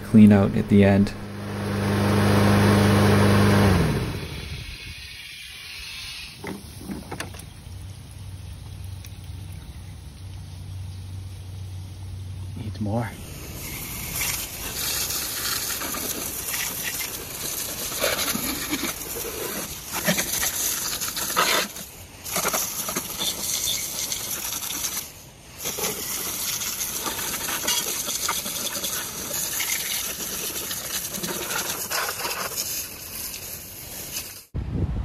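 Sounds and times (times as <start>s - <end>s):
water spraying against metal deck: 0.0s - 10.4s, 13.0s - 34.6s.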